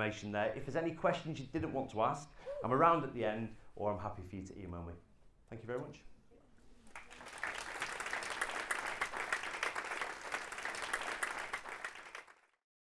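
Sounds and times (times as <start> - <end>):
audience applauding: 6.9 - 12.6.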